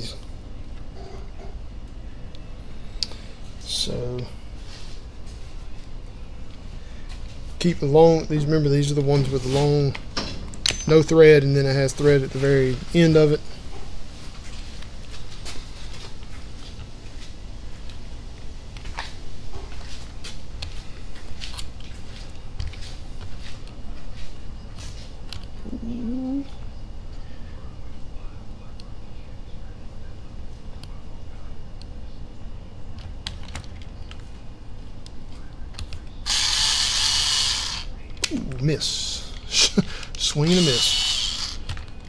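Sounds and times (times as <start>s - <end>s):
electric screwdriver running: 36.3s - 37.9s, 40.4s - 41.7s.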